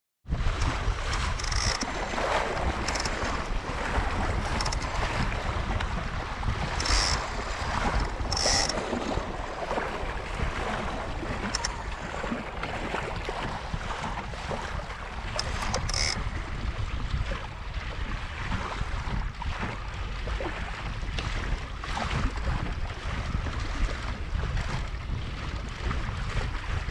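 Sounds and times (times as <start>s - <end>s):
water rushing along boat hull: 0.3s - 26.9s
wind buffeting microphone: 0.3s - 26.9s.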